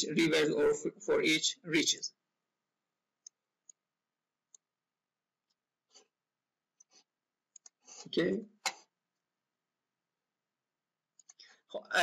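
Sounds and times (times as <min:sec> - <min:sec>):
computer mouse clicks: 0:07.5 - 0:07.8, 0:11.2 - 0:11.5.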